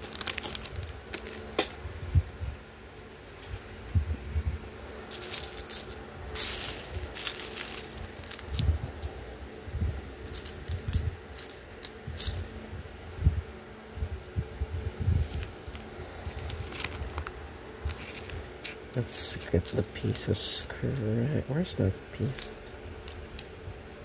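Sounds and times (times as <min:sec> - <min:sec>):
plastic bricks clattering: 0:00.0 - 0:01.8, 0:05.1 - 0:08.6, 0:10.2 - 0:12.5.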